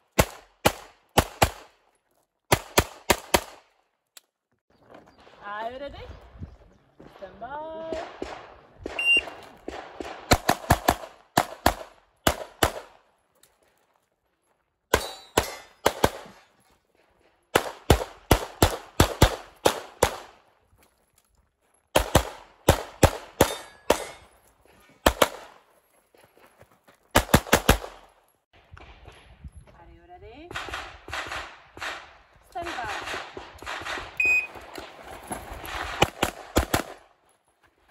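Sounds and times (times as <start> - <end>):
pistol shots: 7.9 - 13.0, 14.9 - 16.4, 17.5 - 20.4, 22.0 - 24.2, 30.5 - 34.2
shot timer beep: 9.0 - 9.4, 34.2 - 34.5.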